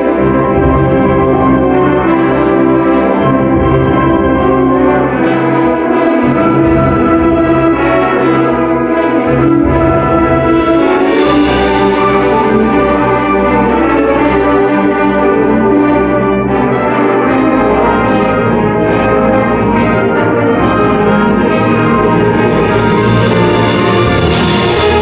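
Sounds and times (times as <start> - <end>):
concert band playing fanfare: 21.8 - 25.0.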